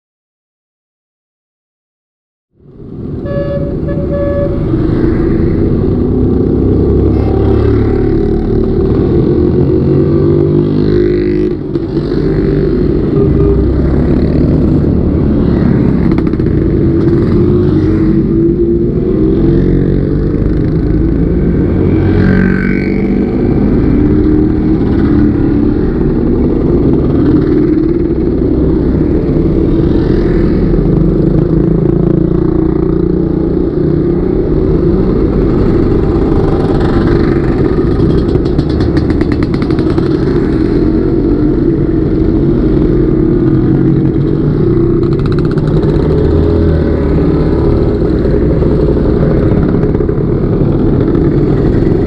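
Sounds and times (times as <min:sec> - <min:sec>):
short horn beeps: 0:03.2 - 0:04.8, 0:13.2 - 0:13.7
scooter engines revving: 0:03.3 - 0:52.0.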